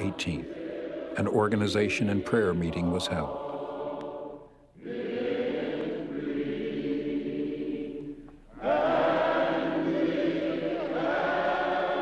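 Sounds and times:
congregation singing slowly: 0.0 - 12.0.

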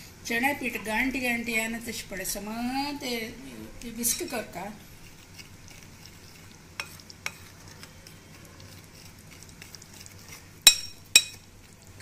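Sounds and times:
spoon scooping curd: 3.8 - 12.0
spoon clinking against glass: 10.7 - 11.4.

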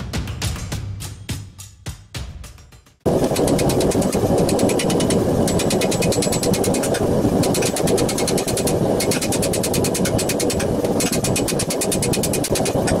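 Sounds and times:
steady low noise: 3.1 - 13.0.

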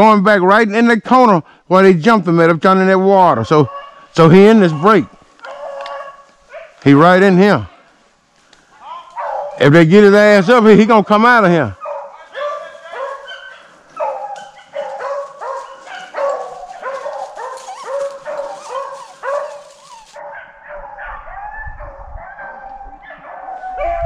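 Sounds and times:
dogs baying: 3.6 - 6.8, 9.0 - 9.6, 11.8 - 21.5.

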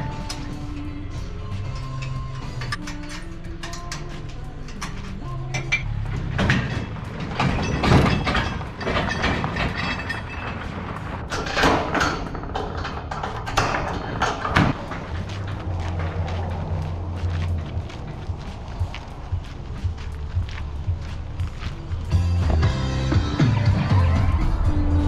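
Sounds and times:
metal clanking and rattling: 0.0 - 19.9.

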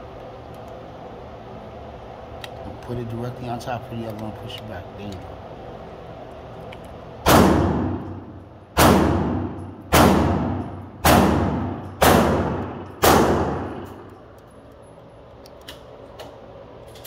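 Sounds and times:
pistol shots echoing indoors: 7.2 - 14.0.

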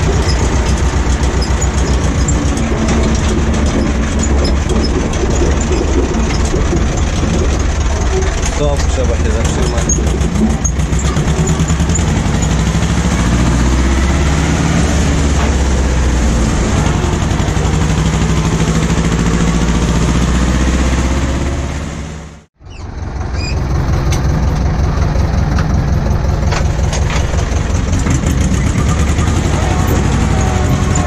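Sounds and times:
tractor diesel engine running: 0.0 - 31.0.

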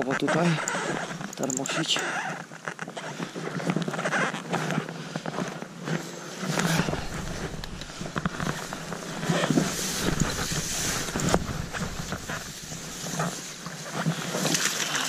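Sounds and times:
rustling: 5.8 - 15.0
deep rumble: 6.7 - 13.6
wind buffeting microphone: 6.7 - 13.6.

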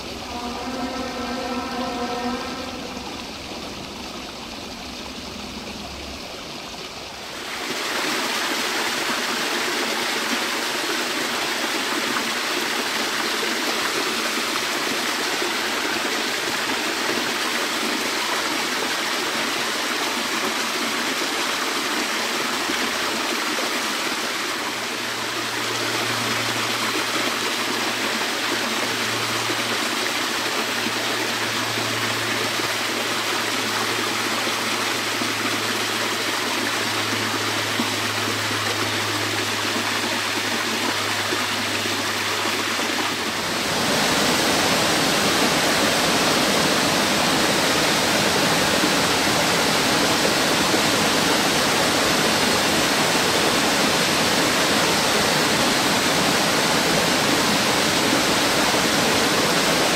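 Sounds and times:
low pulsing hum: 0.0 - 7.1
rushing water: 0.0 - 59.9.

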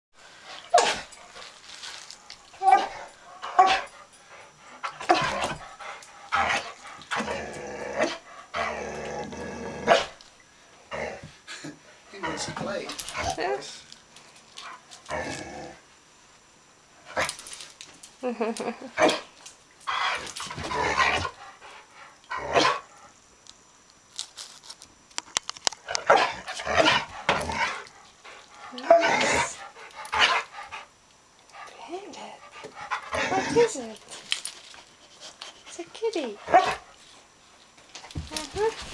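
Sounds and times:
dog grumbling: 6.3 - 10.2, 15.0 - 15.8, 26.0 - 27.9, 28.6 - 30.5, 32.9 - 34.0.

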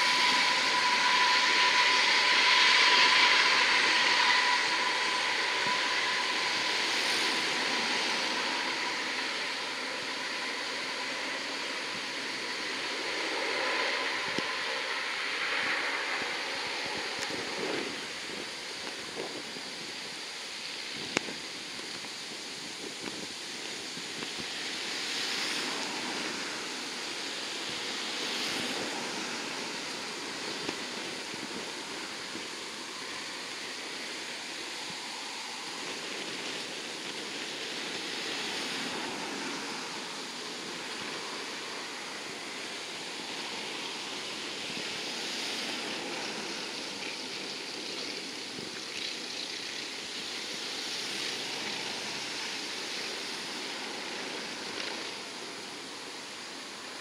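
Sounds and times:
distant turboprop engines roaring: 0.0 - 50.1.

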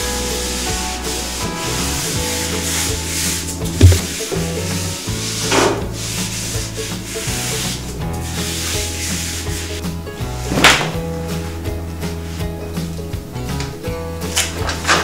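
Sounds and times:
background music: 0.0 - 15.0
cloth wiping floor tiles: 2.6 - 4.6, 5.2 - 9.8
low thump: 3.8 - 4.2.

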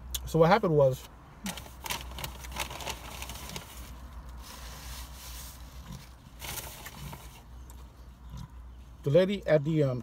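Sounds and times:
chewing and wet mouth noises: 6.9 - 9.0.

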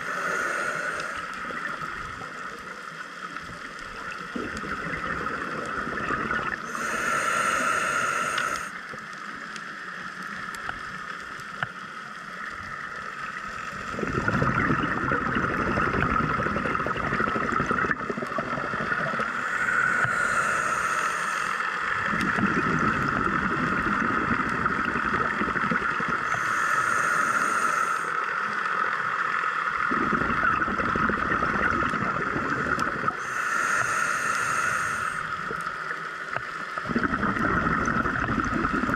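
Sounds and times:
regulator inhale hiss: 0.0 - 2.3, 6.4 - 9.2, 13.0 - 14.0, 19.2 - 22.4, 26.2 - 28.9, 32.5 - 36.7
underwater hum: 0.0 - 38.9
bubbling exhale underwater: 4.0 - 8.7, 13.4 - 21.0, 22.0 - 27.1, 29.8 - 35.7, 36.7 - 38.9.

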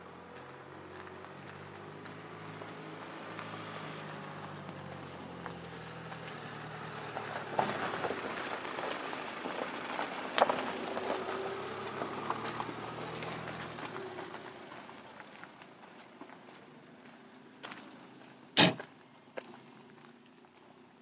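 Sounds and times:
tyres crunching on gravel: 0.2 - 20.8
sharp crack: 18.6 - 18.9.

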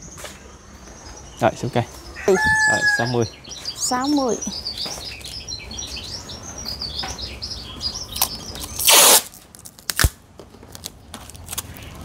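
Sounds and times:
small birds chirping: 0.0 - 9.3.

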